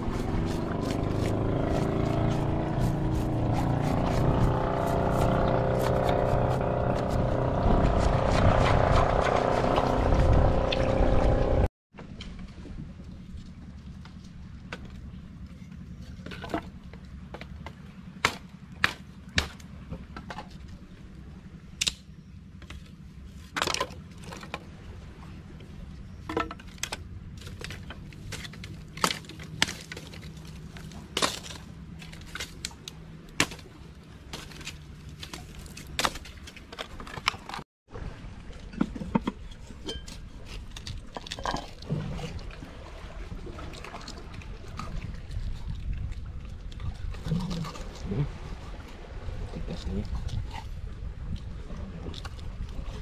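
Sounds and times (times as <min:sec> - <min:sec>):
low rumble: 0:00.0 - 0:26.3
dry sticks snapping: 0:21.8 - 0:22.8, 0:26.6 - 0:33.7.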